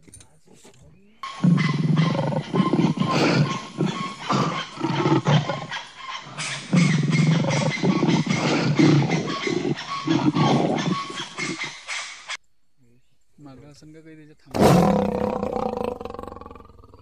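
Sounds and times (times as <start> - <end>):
tiger roaring and growling: 1.2 - 11.8, 14.5 - 17.0.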